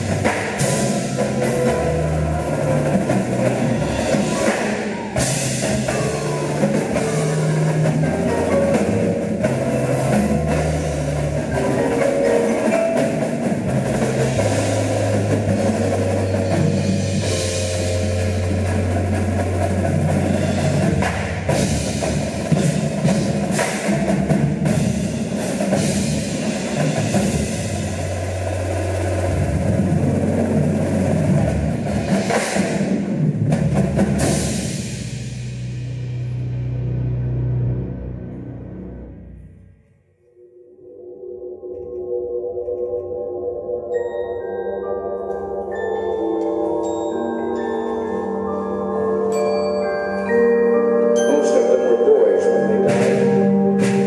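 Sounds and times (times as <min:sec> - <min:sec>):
mallet keyboard notes: 0:00.0 - 0:23.3, 0:43.1 - 0:54.0
long low bass notes: 0:35.2 - 0:39.5.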